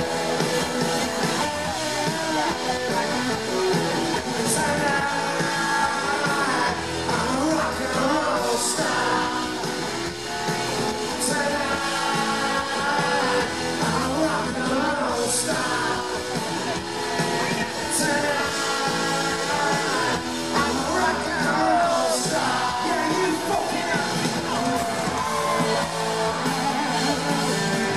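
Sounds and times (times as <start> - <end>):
live rock band: 0.0 - 27.9
man singing: 1.3 - 27.9.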